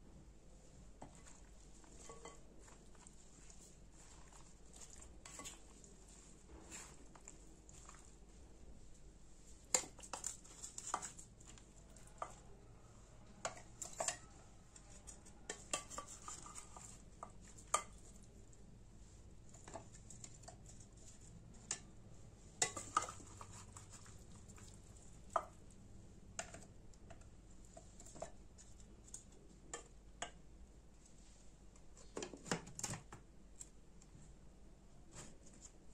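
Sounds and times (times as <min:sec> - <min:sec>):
spatula scraping glass bowl: 0:01.0 - 0:08.0, 0:14.9 - 0:18.0.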